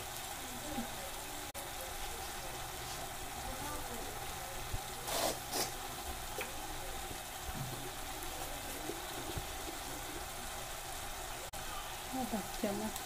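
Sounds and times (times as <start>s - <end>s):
spices frying in hot oil: 0.0s - 13.0s.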